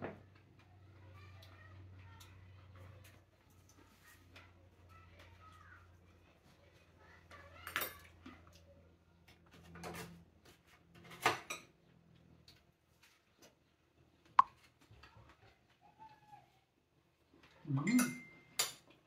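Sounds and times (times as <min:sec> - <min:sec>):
spoon clinking against dish: 0:17.8 - 0:18.8.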